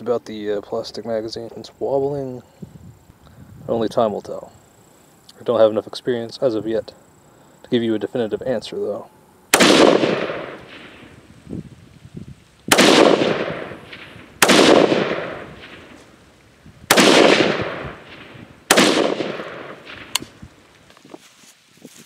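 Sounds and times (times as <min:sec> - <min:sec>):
rifle shots: 0:09.5 - 0:11.2, 0:12.7 - 0:16.2, 0:16.8 - 0:20.4.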